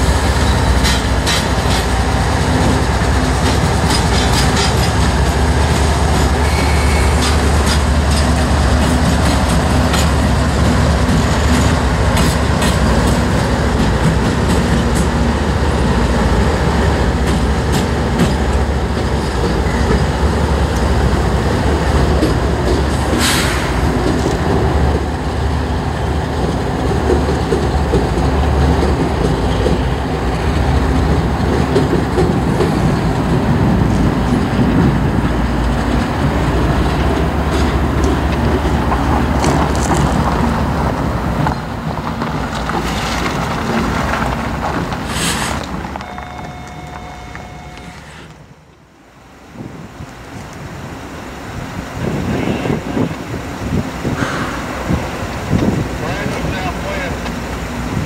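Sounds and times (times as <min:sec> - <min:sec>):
wheels clicking over rail joints: 0:00.0 - 0:48.8, 0:52.0 - 0:58.0
diesel locomotives rumbling past: 0:00.0 - 0:58.0
brief hiss: 0:23.2 - 0:23.8, 0:45.1 - 0:45.7.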